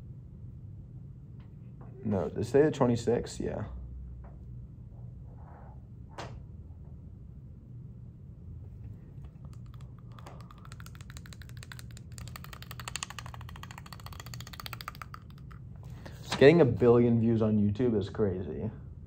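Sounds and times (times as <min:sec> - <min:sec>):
computer keyboard typing: 0:09.2 - 0:15.6.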